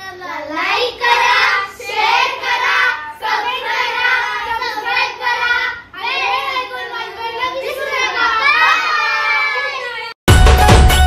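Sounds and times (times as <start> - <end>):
women and girls singing in unison: 0.8 - 6.8.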